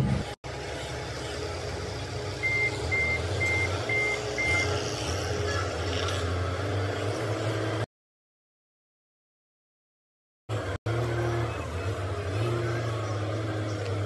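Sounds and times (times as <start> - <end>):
engine running: 0.0 - 7.9, 10.5 - 14.0
vehicle backup alarm beeping: 2.4 - 4.9.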